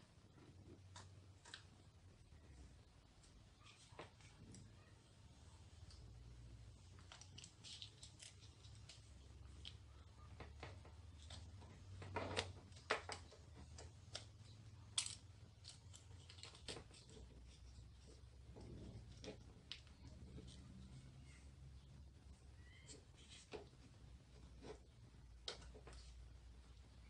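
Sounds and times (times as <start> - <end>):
low steady hum: 0.0 - 27.0
plastic parts clicking and rattling: 6.8 - 21.0.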